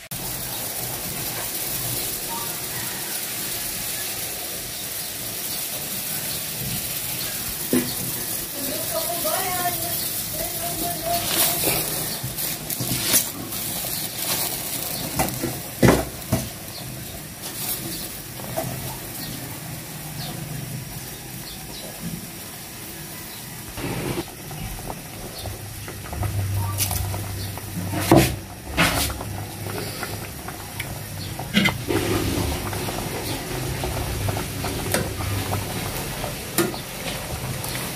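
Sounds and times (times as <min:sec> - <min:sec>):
broth bubbling in pot: 0:00.0 - 0:37.9.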